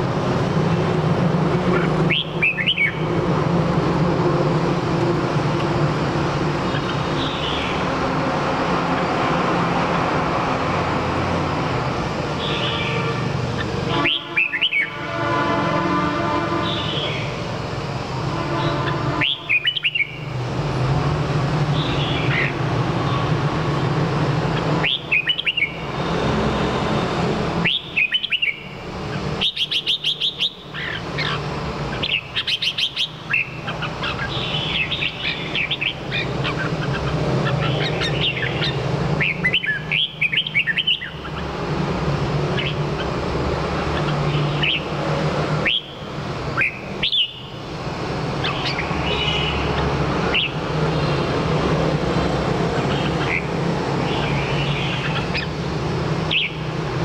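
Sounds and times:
bird singing whistled phrases: 2.1s - 3.0s, 14.0s - 15.0s, 19.2s - 20.2s, 24.8s - 25.8s, 27.6s - 28.7s, 29.4s - 31.4s, 45.6s - 46.0s, 46.6s - 47.5s.

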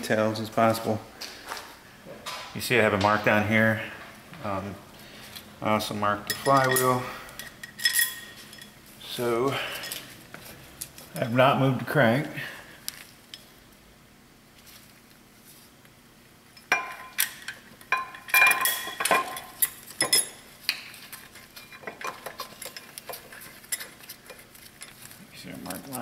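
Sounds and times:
metal clanks and clinks: 6.2s - 8.8s, 16.6s - 20.4s, 21.3s - 25.0s.

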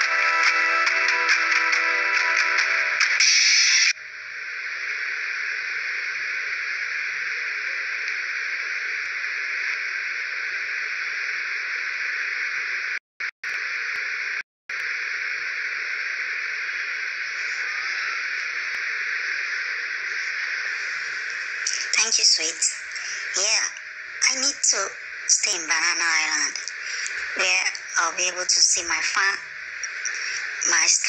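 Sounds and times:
music: 0.0s - 3.9s
steady hiss: 3.2s - 12.9s, 13.6s - 31.0s.

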